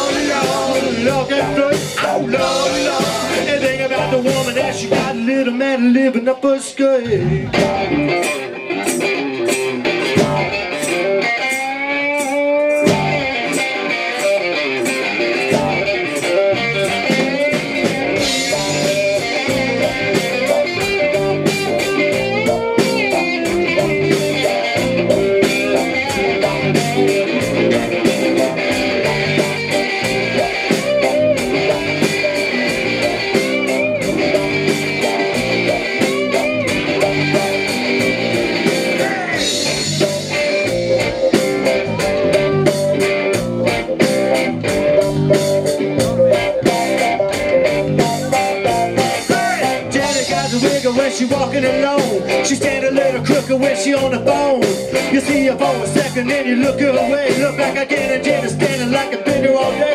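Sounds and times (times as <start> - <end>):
steady drum beat: 0.0 - 5.4, 7.1 - 11.2, 12.7 - 59.9
electric guitar: 0.0 - 59.9.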